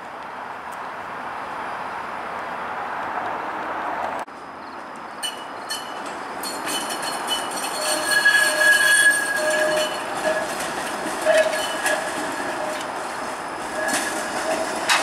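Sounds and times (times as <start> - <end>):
streetcar wheels squealing: 5.0 - 15.0
wheels clicking over rails: 5.2 - 15.0.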